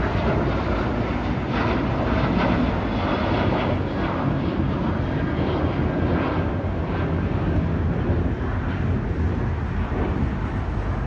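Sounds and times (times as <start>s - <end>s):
jet engines at climb power: 0.0s - 11.0s.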